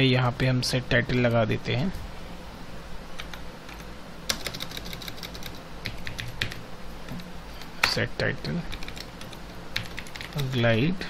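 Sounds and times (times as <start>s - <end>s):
computer keyboard typing: 3.2s - 7.2s, 7.8s - 10.6s.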